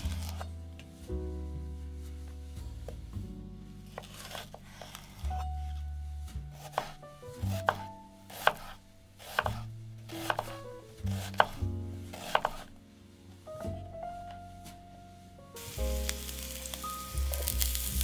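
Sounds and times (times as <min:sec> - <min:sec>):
knife chopping onion on board: 0:06.6 - 0:12.7.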